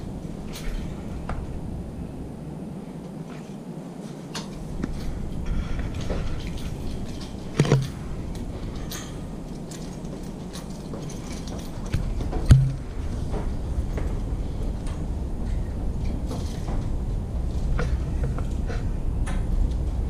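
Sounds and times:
footsteps: 6.1 - 8.7, 9.9 - 14.3
camera handling noise: 7.6 - 8.0
loud thump: 12.5 - 13.0.

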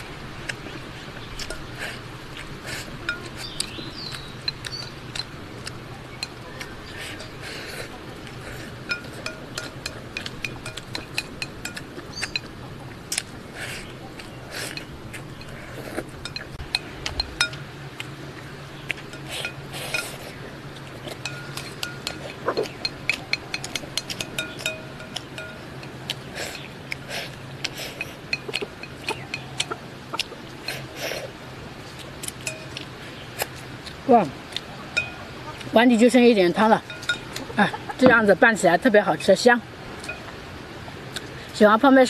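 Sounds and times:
chopsticks clicking against ceramic bowl: 8.9 - 12.5, 16.2 - 17.6, 21.1 - 27.0.

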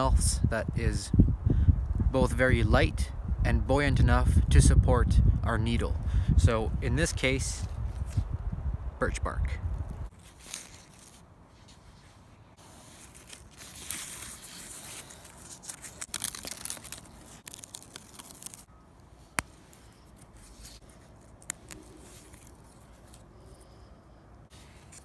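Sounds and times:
birch bark crackling and tearing: 9.8 - 11.3, 12.7 - 23.7.

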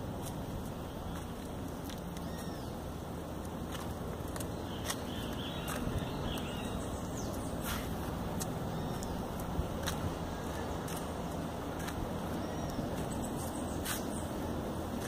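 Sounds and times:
distant city traffic rumble: 0.0 - 15.0
faint bird chirps: 2.2 - 2.8, 12.3 - 14.3.

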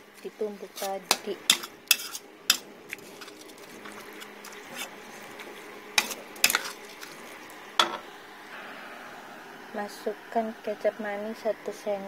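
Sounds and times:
metal spatula scraping a wok: 0.8 - 5.3, 6.0 - 6.8
frying sizzle: 1.1 - 10.4.

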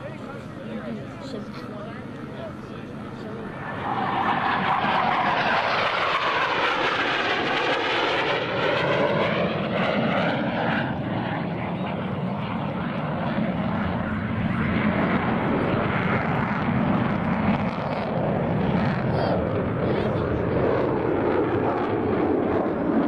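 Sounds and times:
jet engines roaring: 0.0 - 23.0.

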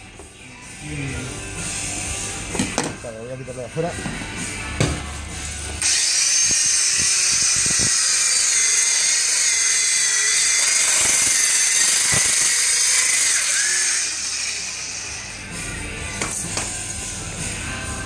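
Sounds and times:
electric meat trimmer whining: 5.8 - 16.0.

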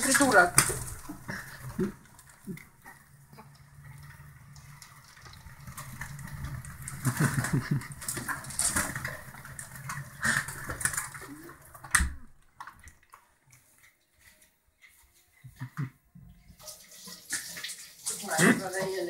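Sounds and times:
pigeon wings flapping: 5.6 - 11.8.

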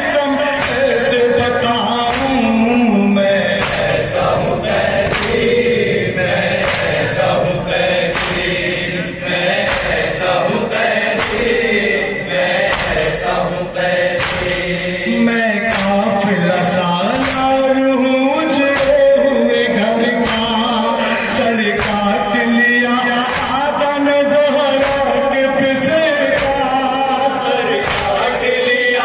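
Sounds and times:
men chanting in unison: 0.0 - 29.0
hands slapping on chests: 0.6 - 0.9, 2.1 - 2.4, 3.6 - 4.2, 5.0 - 5.6, 6.6 - 7.2, 8.1 - 8.6, 9.6 - 10.5, 11.1 - 11.6, 12.6 - 14.6, 15.7 - 16.0, 17.1 - 17.5, 20.2 - 20.6, 21.8 - 22.1, 23.2 - 23.6, 24.8 - 25.1, 26.4 - 26.7, 27.8 - 28.3.

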